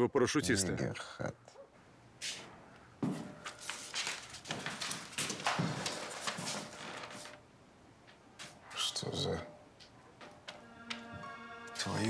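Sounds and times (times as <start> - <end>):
paper rustling and crackling: 3.4 - 7.4.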